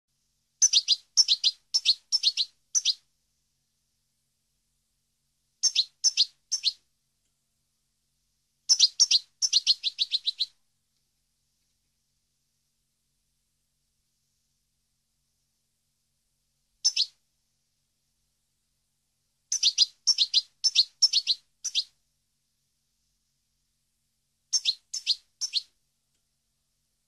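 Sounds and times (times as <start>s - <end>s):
goldfinch twittering: 8.7s - 10.5s.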